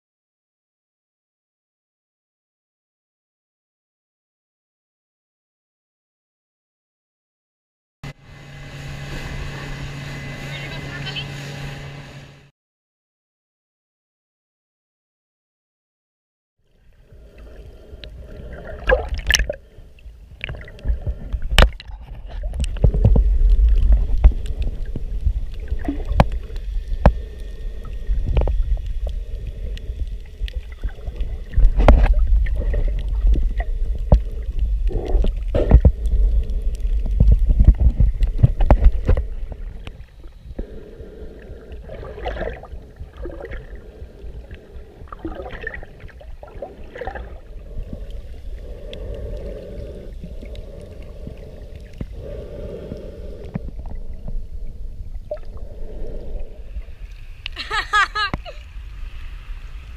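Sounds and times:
underwater rumbling water: 16.6s - 59.9s
sharp underwater clicks: 17.3s - 19.6s, 46.9s - 54.0s.

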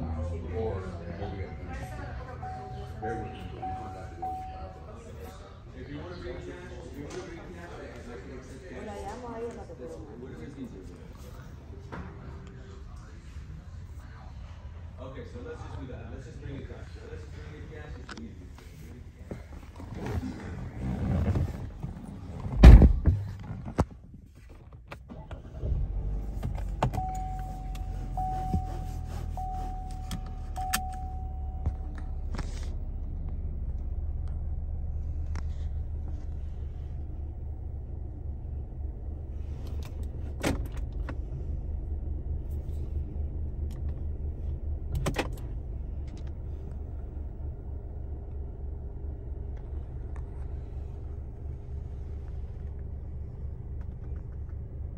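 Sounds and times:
car engine idling: 0.0s - 54.9s.

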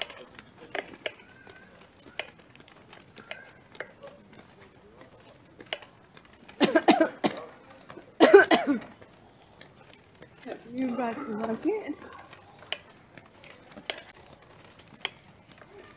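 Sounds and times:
woman coughing: 6.6s - 7.5s, 8.2s - 8.9s.

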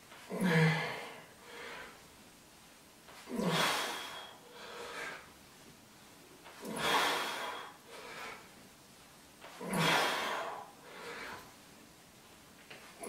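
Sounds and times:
man breathing heavily: 0.3s - 2.0s, 3.2s - 5.3s, 6.5s - 8.6s, 9.4s - 11.6s.

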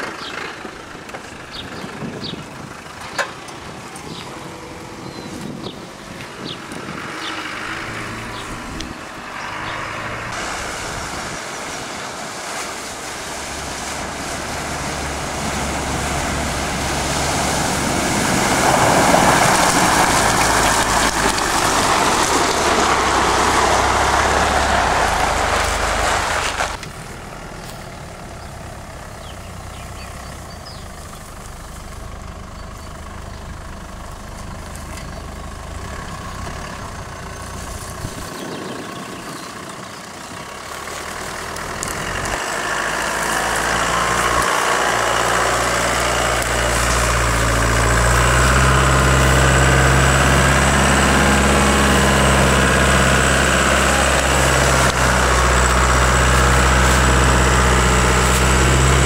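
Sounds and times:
off-road vehicle engines running: 0.0s - 59.0s
loud rushing noise: 6.8s - 26.8s.

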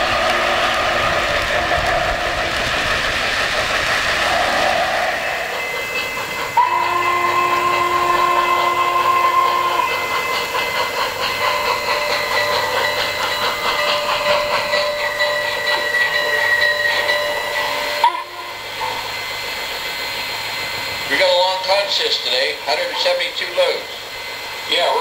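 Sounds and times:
steam chuffing with hiss: 0.0s - 25.0s
model train whistle chord: 6.6s - 10.2s, 15.3s - 18.6s.

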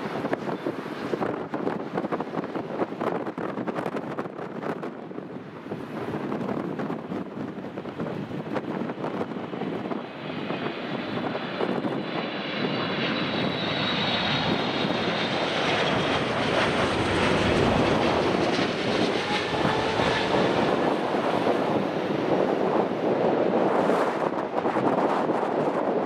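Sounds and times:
jet engine rumble overhead: 0.0s - 26.0s
high fan whine: 13.2s - 26.0s.

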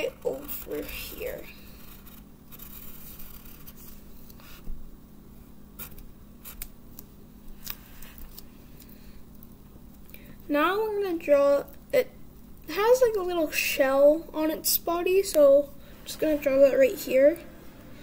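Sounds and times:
steady low hum: 0.0s - 18.0s
pen scratching on paper: 1.8s - 4.6s.

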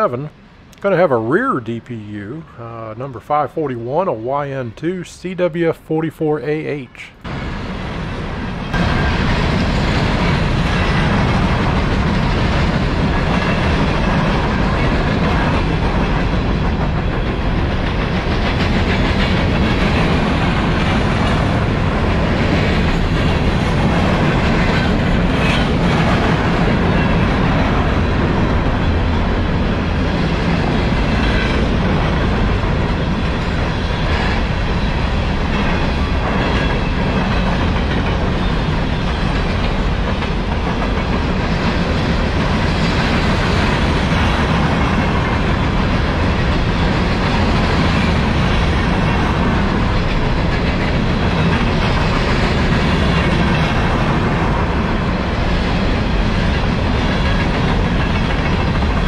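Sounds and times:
steel train wheels on rails: 0.0s - 59.0s.

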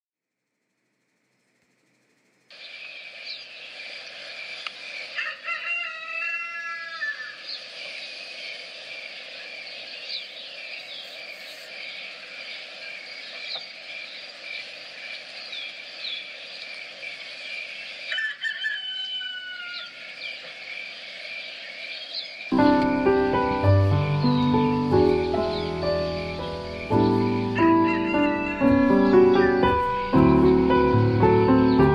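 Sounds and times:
small bird chirps: 1.3s - 22.6s
rooster crowing: 5.0s - 7.6s, 18.1s - 20.1s, 27.6s - 28.8s.

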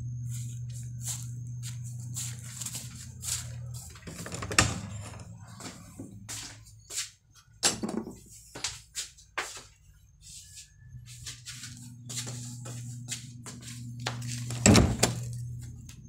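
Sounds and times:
low hum: 0.0s - 6.3s, 10.6s - 16.0s
footsteps: 0.0s - 7.2s, 8.1s - 14.6s.

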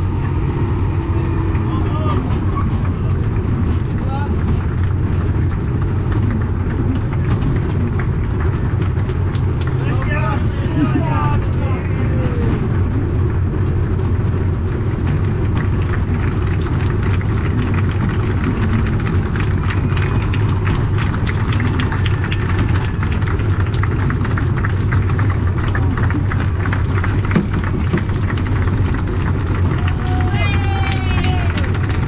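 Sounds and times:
tractor engine running at low revs: 0.0s - 32.0s.

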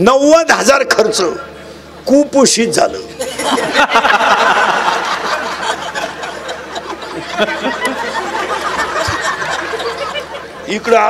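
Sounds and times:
audience laughing: 3.2s - 11.0s.

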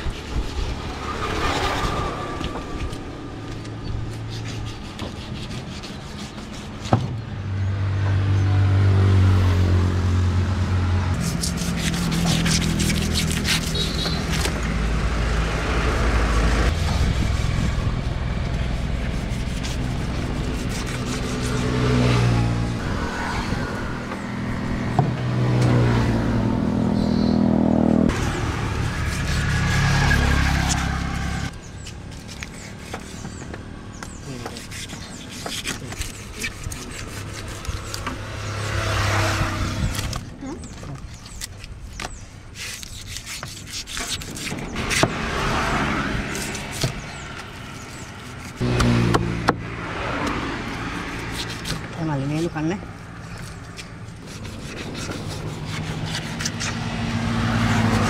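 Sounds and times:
knife scraping fish scales: 0.0s - 6.9s, 11.2s - 14.7s, 16.6s - 23.4s, 28.2s - 49.1s, 50.2s - 58.0s
road vehicles passing by: 0.0s - 58.0s.

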